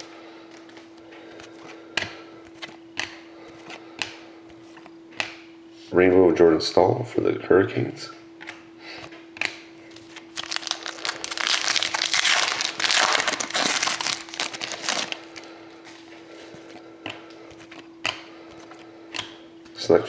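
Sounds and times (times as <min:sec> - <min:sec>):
foil wrapper tearing and crinkling: 0:10.2 - 0:15.5.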